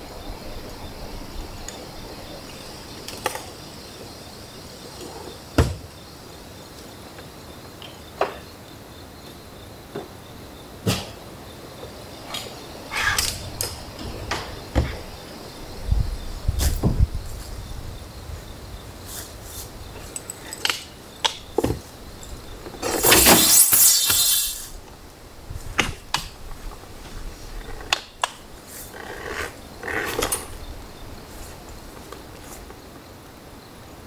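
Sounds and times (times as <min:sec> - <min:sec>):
camping gear clicking and knocking: 0:20.0 - 0:21.9, 0:29.2 - 0:30.6.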